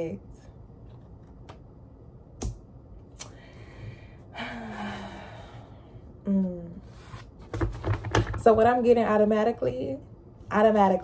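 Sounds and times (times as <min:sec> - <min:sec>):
woman sighing: 0:03.9 - 0:06.9
woman humming: 0:06.2 - 0:06.9.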